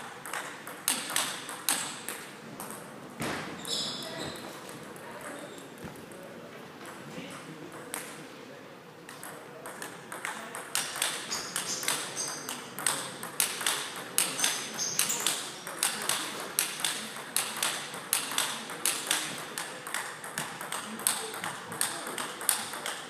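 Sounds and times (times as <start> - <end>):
table tennis ball clicking: 0.2 - 2.8, 9.1 - 23.0.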